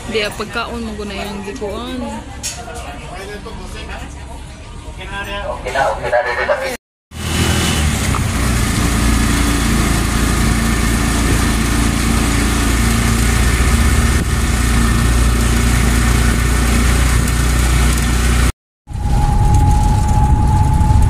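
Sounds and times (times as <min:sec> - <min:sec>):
vehicle engine running: 0:07.1 - 0:21.0.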